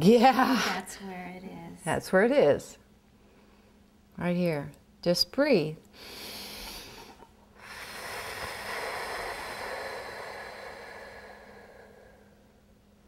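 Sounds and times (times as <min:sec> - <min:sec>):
slow breath out: 0:06.0 - 0:12.6.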